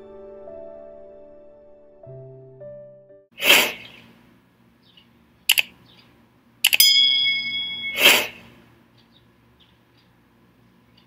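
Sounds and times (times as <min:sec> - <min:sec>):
bell ding: 0:06.8 - 0:08.4.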